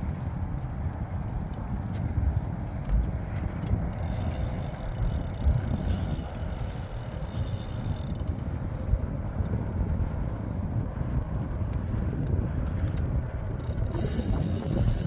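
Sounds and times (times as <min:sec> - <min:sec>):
wind rumbling on microphone: 0:00.0 - 0:15.0
fishing reel clicks: 0:03.6 - 0:08.5, 0:13.6 - 0:15.0.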